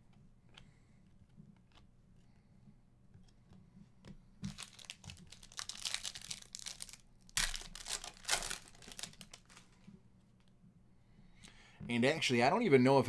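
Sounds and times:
foil wrapper crinkling and tearing: 0:04.5 - 0:09.8.

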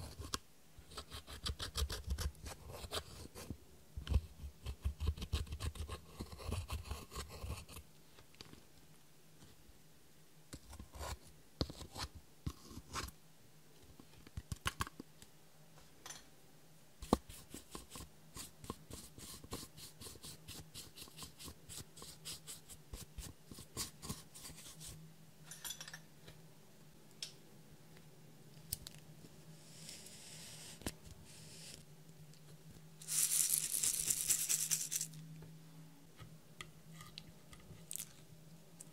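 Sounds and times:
eyeshadow being scraped and crushed: 0:33.0 - 0:35.2.

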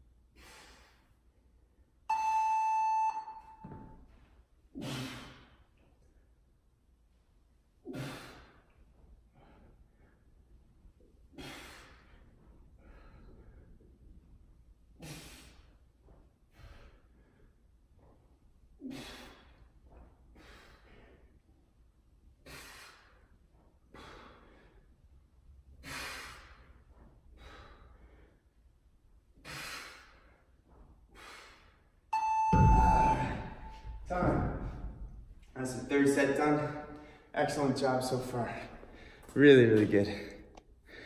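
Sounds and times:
man breathing hard: 0:11.3 - 0:14.1, 0:16.5 - 0:17.7, 0:18.8 - 0:19.7, 0:20.3 - 0:21.5, 0:22.4 - 0:25.0, 0:25.7 - 0:28.6, 0:29.4 - 0:30.5, 0:31.1 - 0:31.9, 0:40.2 - 0:41.0.

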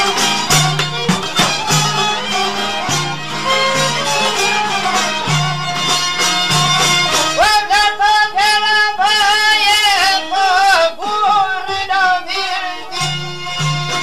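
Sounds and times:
instrumental folk music: 0:00.0 - 0:14.0.

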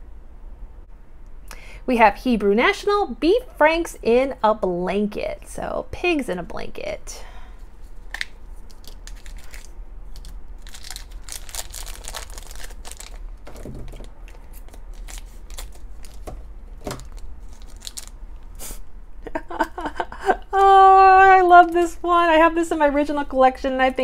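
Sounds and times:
plastic packet crinkling: 0:08.0 - 0:18.2.

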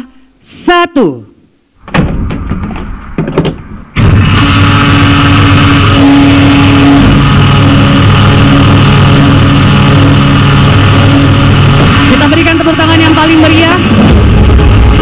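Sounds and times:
loud engine-like drone: 0:03.8 - 0:15.0.

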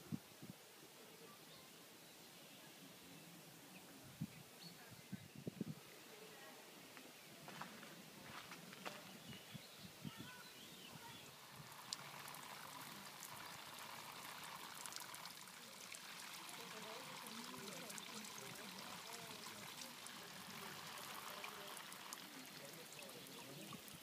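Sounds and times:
faint voices: 0:00.8 - 0:11.6, 0:15.4 - 0:24.0
fountain trickling into pond: 0:10.4 - 0:24.0.

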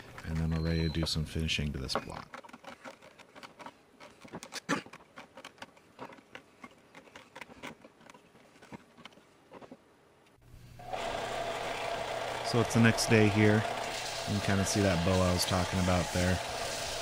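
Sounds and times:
belt sander motor humming: 0:10.8 - 0:17.0.

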